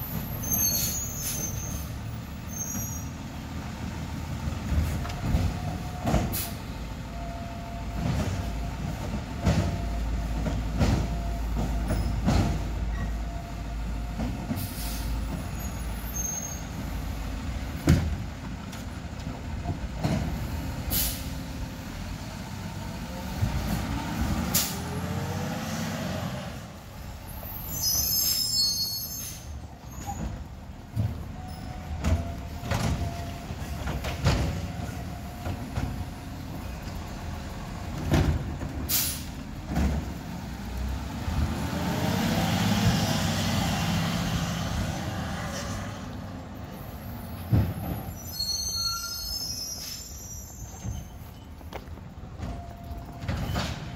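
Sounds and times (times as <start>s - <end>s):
air brake hiss: 6.3s - 6.6s, 14.6s - 15.2s, 20.9s - 21.4s, 38.9s - 39.4s, 49.4s - 50.5s.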